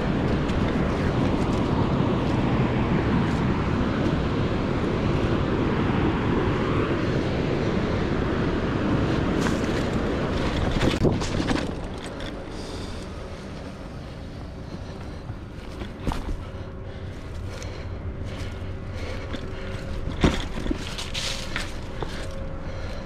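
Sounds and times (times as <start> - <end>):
bike rolling on dirt trail: 0.0 - 23.0
wind buffeting microphone: 0.0 - 23.0
sharp rattles and knocks: 9.4 - 12.6, 19.2 - 22.4.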